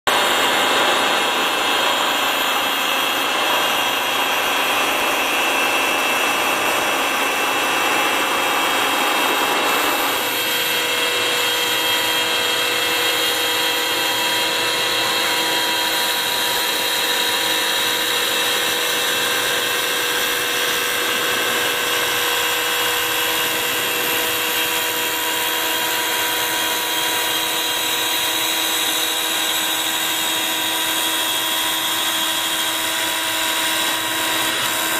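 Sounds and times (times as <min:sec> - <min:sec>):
lathe machine whine: 0:00.1 - 0:34.9
hiss of cutting wood: 0:07.5 - 0:34.9.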